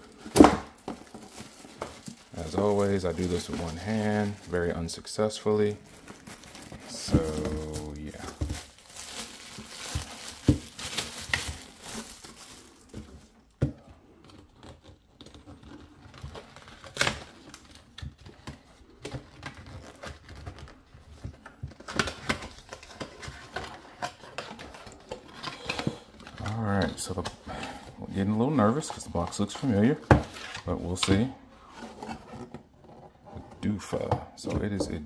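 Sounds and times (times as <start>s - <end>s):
plastic wrap crinkling and tearing: 0.0s - 32.8s.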